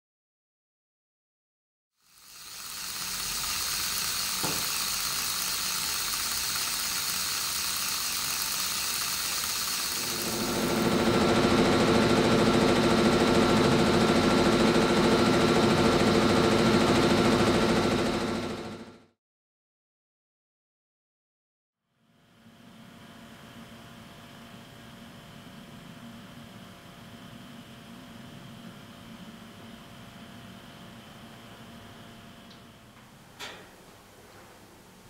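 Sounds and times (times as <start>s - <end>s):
electric motor humming: 2.0s - 11.8s.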